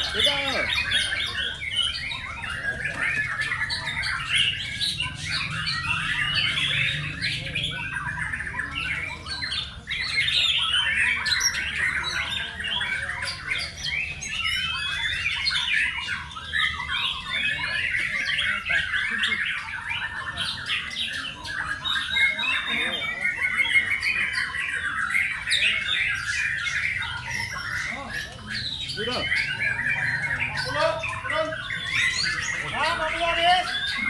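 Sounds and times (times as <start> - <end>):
many songbirds singing: 0.0 - 34.0.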